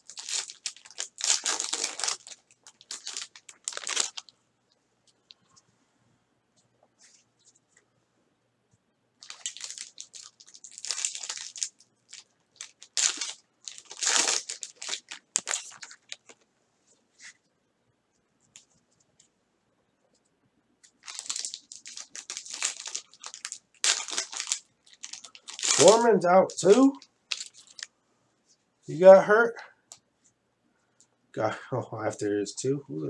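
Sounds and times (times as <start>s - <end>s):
foil wrappers crinkling and tearing: 0.0s - 4.3s, 9.2s - 16.4s, 21.0s - 27.9s.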